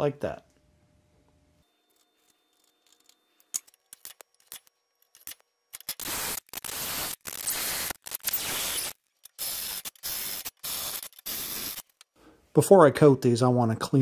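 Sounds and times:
cordless drill boring into steel: 6.1s - 11.8s.

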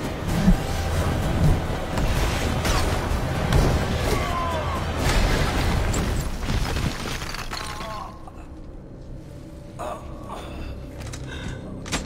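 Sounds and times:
falling debris and rubble: 2.0s - 8.4s
masonry smashing: 5.0s - 8.2s.

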